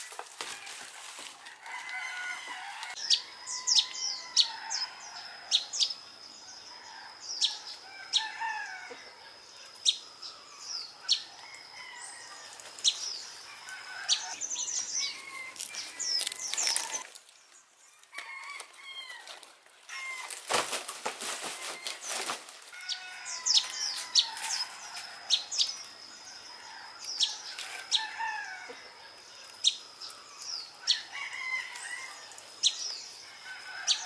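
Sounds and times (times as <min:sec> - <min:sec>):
dry palm fronds rustling: 0:00.0 - 0:03.0, 0:12.2 - 0:26.0, 0:26.7 - 0:28.3
birds chirping: 0:01.6 - 0:19.0, 0:21.5 - 0:34.0.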